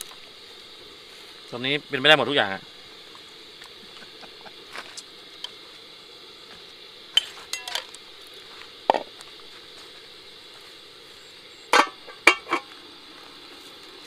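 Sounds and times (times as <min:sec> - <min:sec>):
metal ladle clinking on pot: 0:07.2 - 0:07.9.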